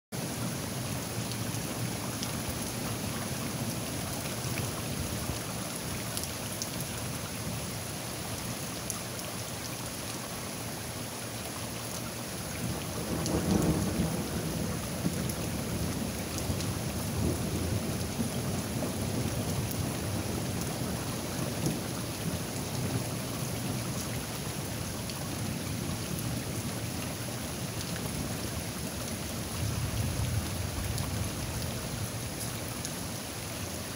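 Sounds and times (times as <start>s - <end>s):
heavy rain falling: 0.2s - 33.9s
thunder rumbling: 12.7s - 23.1s.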